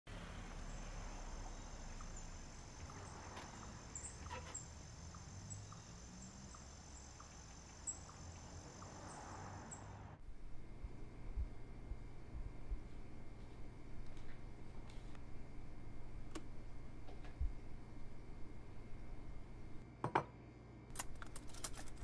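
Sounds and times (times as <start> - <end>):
crickets trilling and chirping: 0.6 - 10.0.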